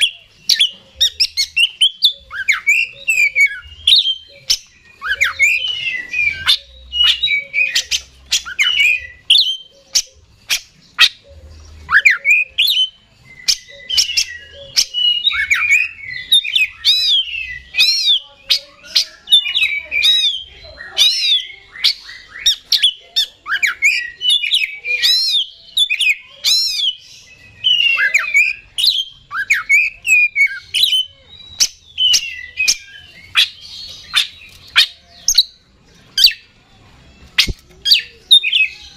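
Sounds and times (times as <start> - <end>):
bird singing clicks and whistles: 37.3 - 38.8.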